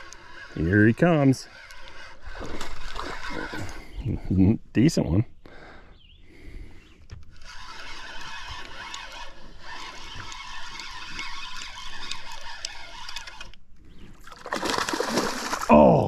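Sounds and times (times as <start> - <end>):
fishing reel gears whirring: 0.0 - 3.9, 7.2 - 13.6.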